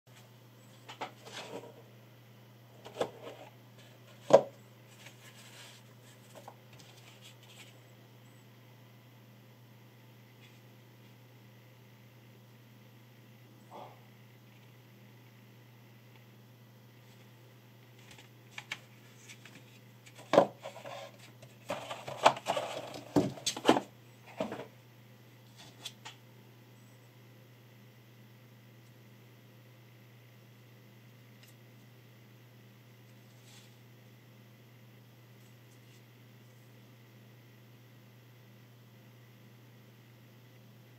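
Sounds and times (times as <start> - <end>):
low electrical hum: 0.1 - 40.9
rustling and scraping: 0.2 - 1.9, 2.8 - 7.9, 18.0 - 24.7, 25.4 - 26.1, 33.2 - 33.8.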